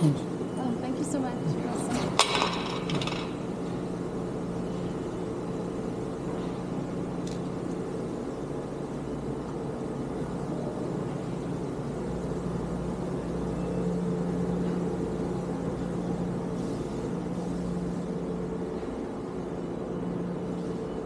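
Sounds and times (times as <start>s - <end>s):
machine hum: 0.0s - 21.0s.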